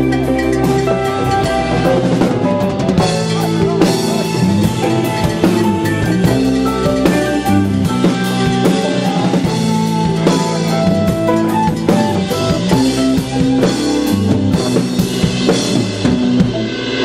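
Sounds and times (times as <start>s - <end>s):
drum kit steady beat: 0.0s - 17.0s
electronic keyboard chords: 0.0s - 17.0s.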